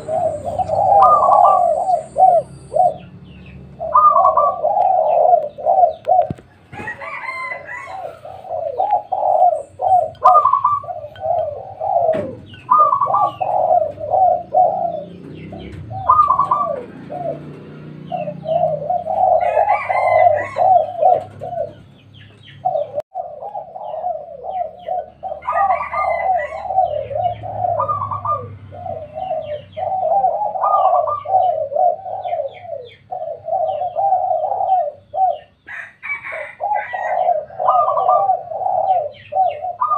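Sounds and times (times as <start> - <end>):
doves cooing: 0.0 - 39.9.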